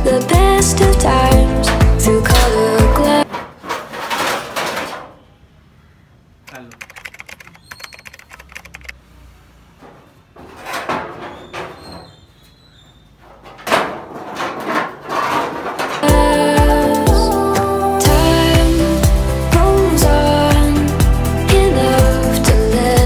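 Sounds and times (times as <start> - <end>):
plastic parts bumping: 3.2 - 5.2, 10.3 - 12.2, 13.2 - 16.1
plastic parts clattering: 3.2 - 5.2, 13.3 - 16.1
scraping and rustling: 3.2 - 5.3, 9.7 - 16.1.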